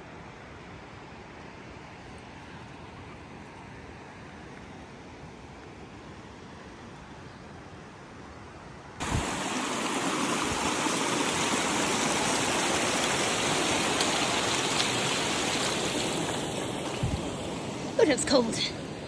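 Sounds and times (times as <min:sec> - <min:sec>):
stream rushing over rocks: 0:09.0 - 0:19.0.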